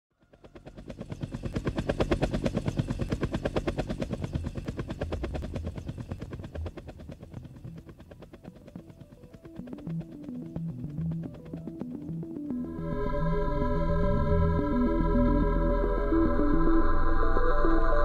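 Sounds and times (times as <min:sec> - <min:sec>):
helicopter rotor blades chopping: 0:00.2 - 0:12.9.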